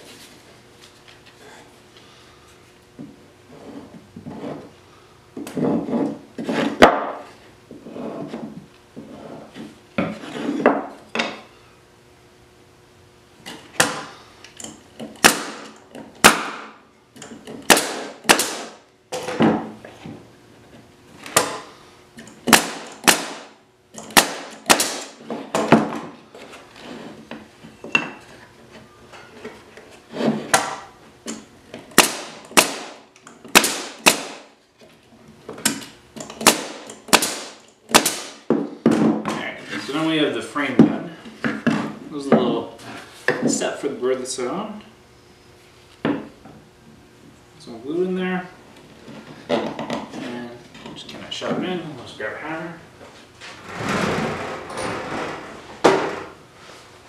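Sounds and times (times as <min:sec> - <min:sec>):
nail gun firing: 0:15.2 - 0:16.8, 0:17.6 - 0:18.8, 0:22.4 - 0:25.9, 0:31.9 - 0:34.5, 0:36.4 - 0:38.5.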